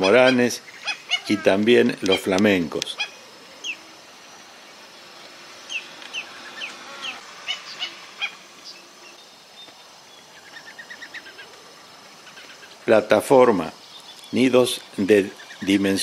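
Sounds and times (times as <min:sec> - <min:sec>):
flamingos chattering: 0:00.0 - 0:09.1
flamingos honking: 0:00.0 - 0:09.1.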